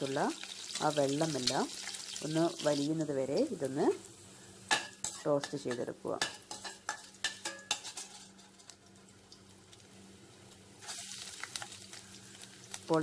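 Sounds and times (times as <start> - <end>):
chillies sizzling in hot oil: 0.0 - 13.0
steel spoon scraping a pan: 4.7 - 8.8, 10.8 - 11.7.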